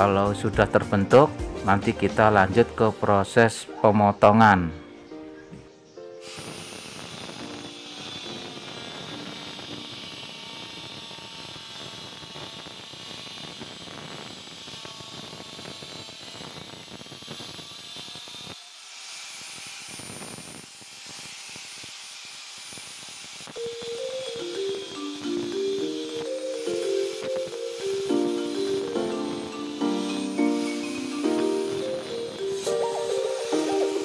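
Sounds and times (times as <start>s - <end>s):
angle grinder whining: 6.2s - 34.0s.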